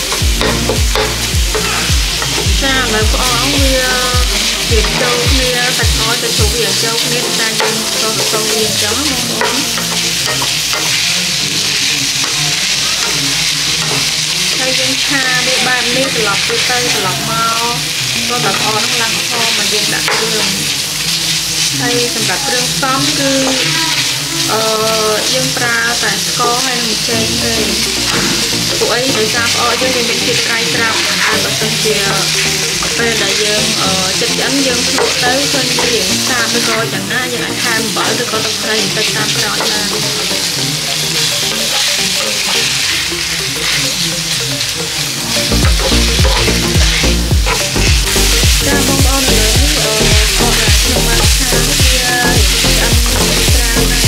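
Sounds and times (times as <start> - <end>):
wooden spatula scraping: 0.0 - 17.6, 45.2 - 54.0
meat sizzling in a skillet: 0.0 - 54.0.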